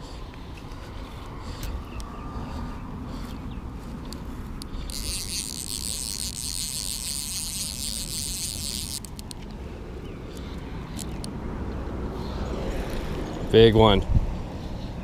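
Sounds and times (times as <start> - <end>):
fly reel ratcheting buzz: 4.6 - 9.4.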